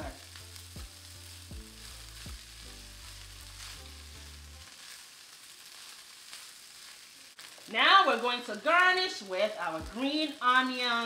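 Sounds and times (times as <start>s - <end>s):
rice sizzling in a wok: 0.0s - 11.0s
spatula scraping a pan: 1.2s - 7.6s.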